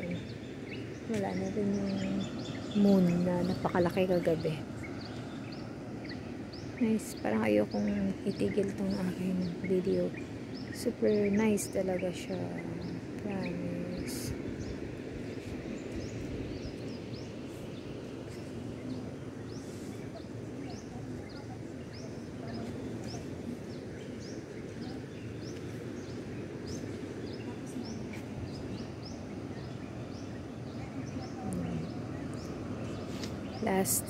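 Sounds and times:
low outdoor rush: 0.0s - 34.0s
small birds chirping: 0.0s - 34.0s
faint distant voices: 17.3s - 34.0s.

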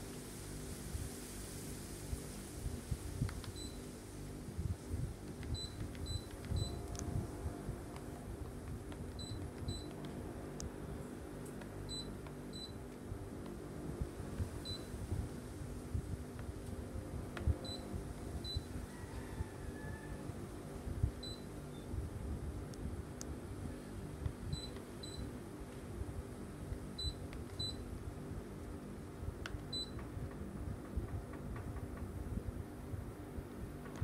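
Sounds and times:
air conditioner running hum: 0.0s - 34.0s
air conditioner beeps: 3.2s - 4.0s, 4.6s - 10.6s, 11.6s - 15.1s, 17.1s - 20.2s, 21.0s - 22.0s, 24.2s - 25.4s, 26.9s - 28.0s, 29.4s - 30.2s.

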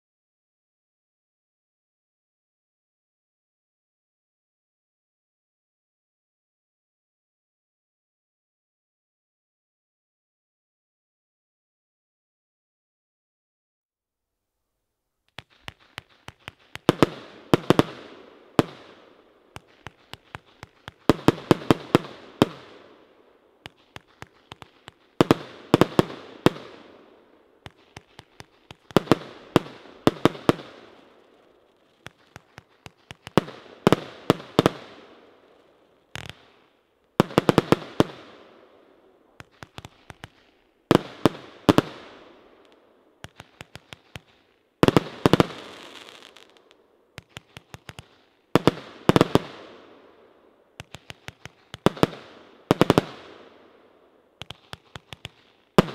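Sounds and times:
firework cake sharp bangs: 27.6s - 35.4s.

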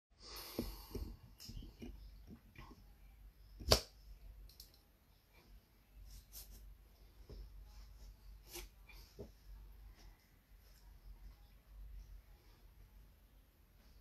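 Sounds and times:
faint small knocks and rustles: 5.3s - 13.0s.

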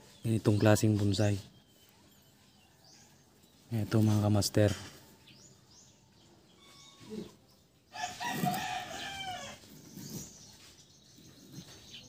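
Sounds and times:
rooster crowing: 7.9s - 9.6s.

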